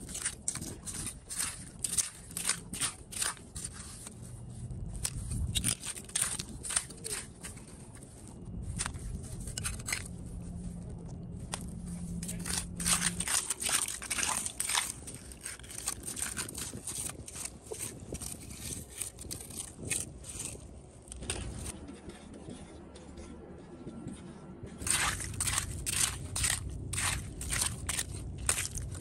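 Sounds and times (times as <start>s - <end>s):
metal rake scraping shells: 12.1s - 19.5s.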